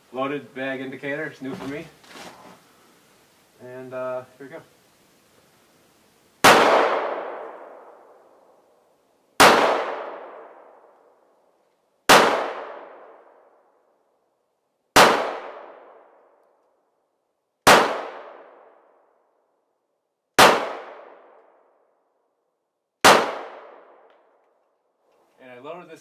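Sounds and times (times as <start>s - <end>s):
pistol shots with echo: 6.4s - 8.1s, 9.4s - 10.8s, 12.1s - 13.4s, 15.0s - 16.1s, 17.6s - 18.7s, 20.4s - 21.4s, 23.0s - 24.1s.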